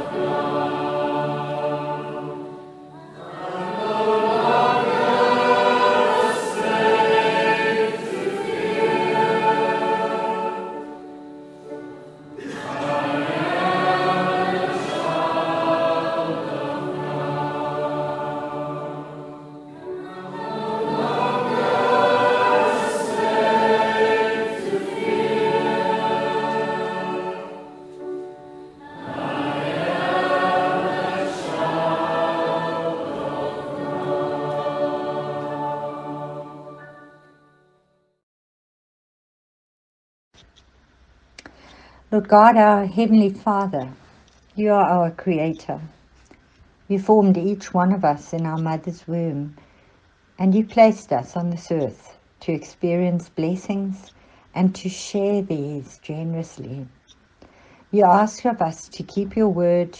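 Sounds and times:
choir singing: 0.0 - 37.5.

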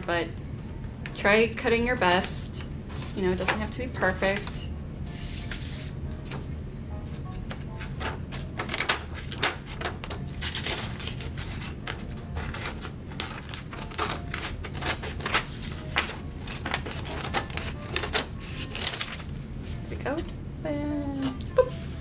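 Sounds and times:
scissors snipping paper: 7.8 - 19.3.

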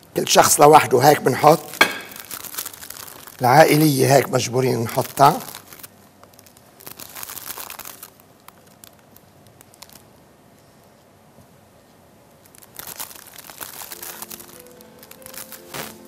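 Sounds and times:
plastic bag crinkling: 0.6 - 10.6, 12.3 - 16.0
dry toast crunching: 1.4 - 10.2, 12.4 - 16.0.

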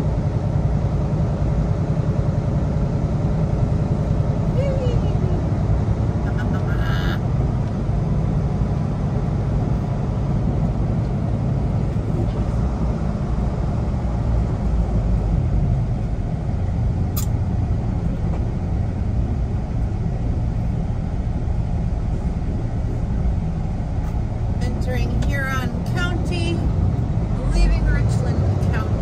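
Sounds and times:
truck engine and road rumble: 0.0 - 29.0
sharp click: 17.1 - 17.4.

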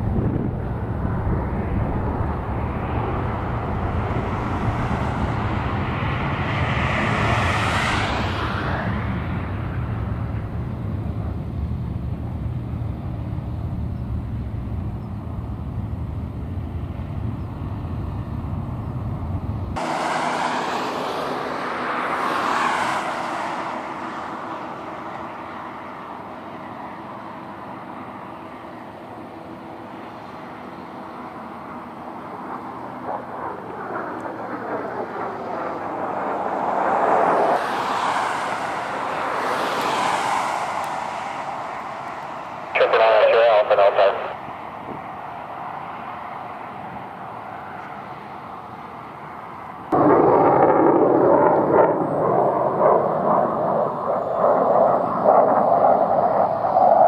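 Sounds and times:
jet aircraft passing overhead: 0.0 - 57.0
low rumble: 49.9 - 56.8.

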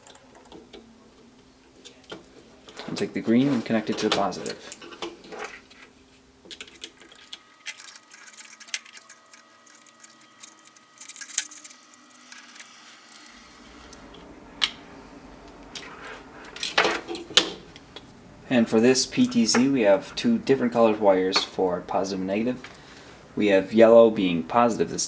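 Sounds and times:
screwdriver turning screw: 6.6 - 13.3.

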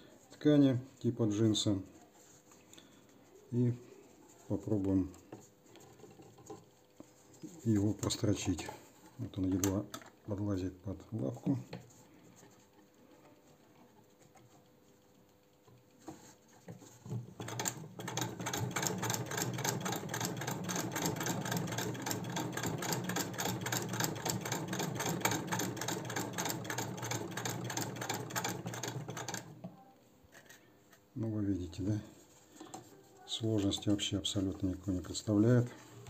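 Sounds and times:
sewing machine clattering: 17.1 - 29.5.

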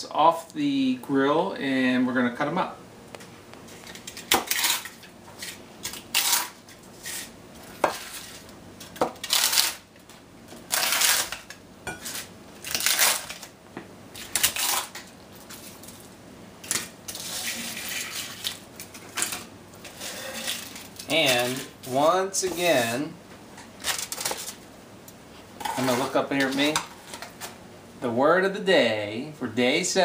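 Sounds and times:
brittle pieces crackling by hand: 8.0 - 9.8, 10.6 - 11.6, 12.6 - 13.5, 14.2 - 16.0.

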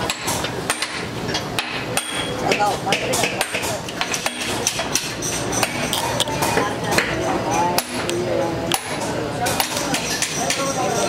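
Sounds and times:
voices: 5.4 - 11.0.

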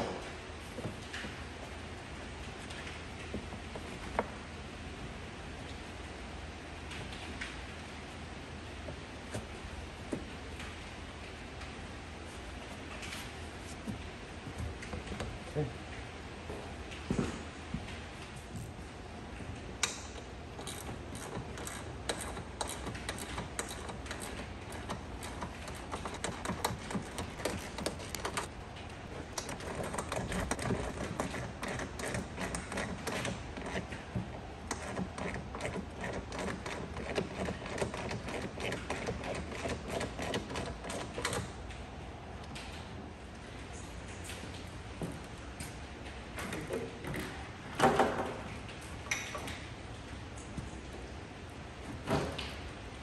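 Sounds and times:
hand tools clicking and clattering: 20.6 - 41.4.

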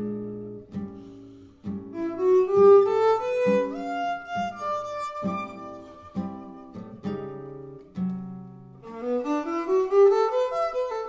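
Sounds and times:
jazz violin run: 2.0 - 6.7, 8.8 - 11.0.

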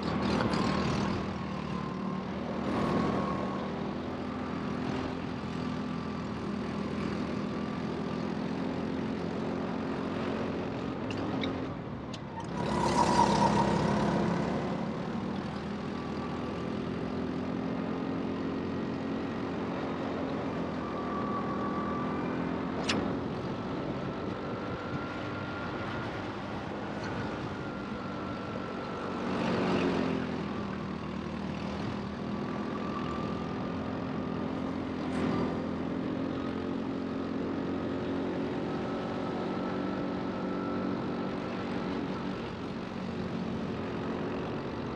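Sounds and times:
go-kart engine drone and whine: 0.0 - 44.9
sharp click: 22.8 - 23.1.

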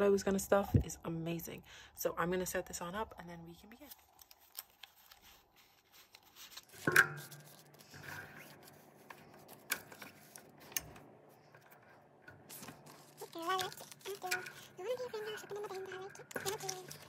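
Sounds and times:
paper banknotes rustling: 3.6 - 17.0.

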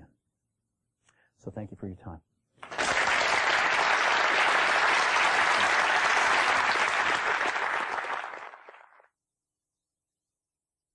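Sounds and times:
audience applauding: 2.6 - 9.1.

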